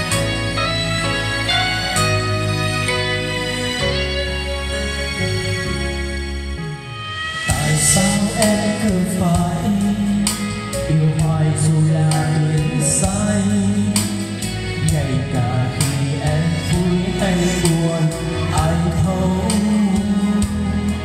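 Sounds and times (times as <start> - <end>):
backing track over speaker: 0.0 - 21.0
man singing into a microphone: 7.4 - 21.0.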